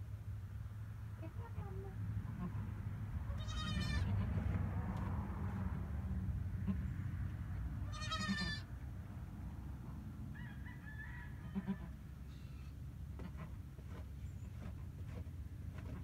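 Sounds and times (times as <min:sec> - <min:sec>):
goat kid bleating: 0:02.2 - 0:02.7, 0:03.3 - 0:04.4, 0:06.6 - 0:06.9, 0:07.8 - 0:08.7, 0:11.5 - 0:12.0.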